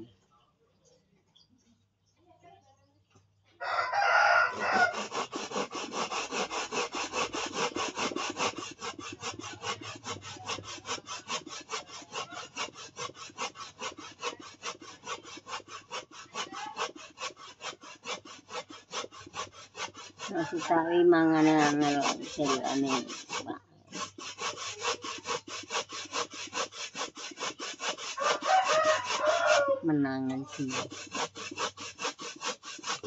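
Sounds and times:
coconut rasping on metal grater: 4.0 - 33.0.

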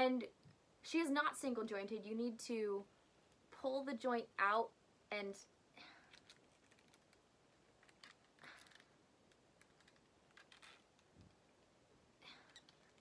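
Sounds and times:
small clicks of doll joint: 6.0 - 11.7, 12.4 - 13.0.

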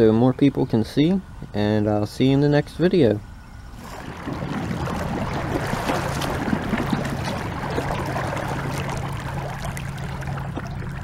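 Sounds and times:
steady low hum: 0.0 - 11.0
water rushing along boat hull: 3.7 - 11.0.

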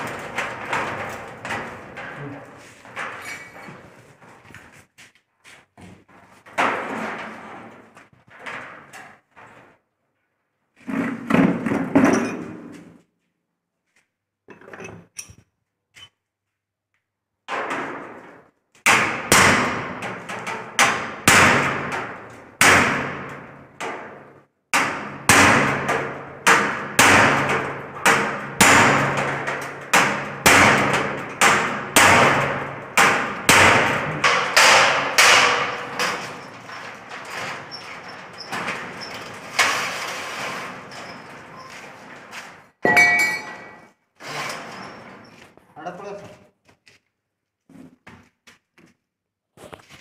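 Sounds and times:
hammer striking metal frame: 18.8 - 37.6, 42.8 - 43.9.

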